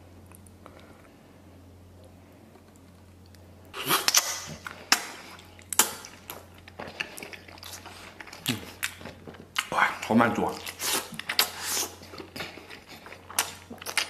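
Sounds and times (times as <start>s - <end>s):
low steady hum: 0.0s - 14.0s
lip smacks and chewing: 10.6s - 14.0s
person slurping food: 10.7s - 12.0s.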